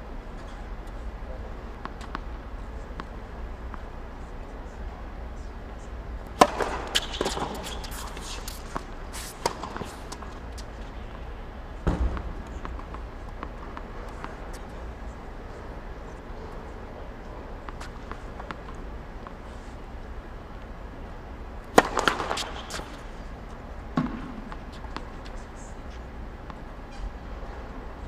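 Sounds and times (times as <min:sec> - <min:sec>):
tennis balls bouncing: 0:01.7 - 0:04.0, 0:06.2 - 0:20.1, 0:21.6 - 0:28.0
tennis balls struck by rackets: 0:06.3 - 0:16.3, 0:17.0 - 0:20.1, 0:21.6 - 0:25.6
deep thud: 0:11.8 - 0:12.4.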